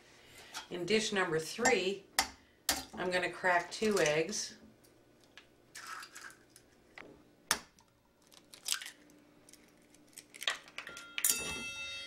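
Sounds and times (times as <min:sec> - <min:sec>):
eggshell cracking: 0:05.2 - 0:10.9.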